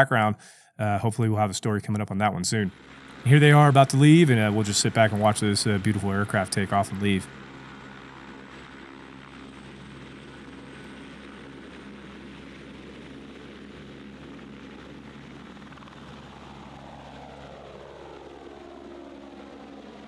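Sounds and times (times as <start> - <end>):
falling tones: 2.4 - 8.8
helicopter engine and rotor: 2.7 - 20.0.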